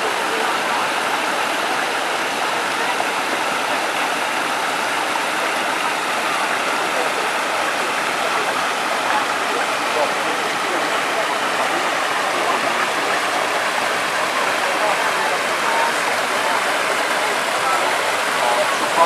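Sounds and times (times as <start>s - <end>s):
waterfall rushing: 0.0s - 19.0s.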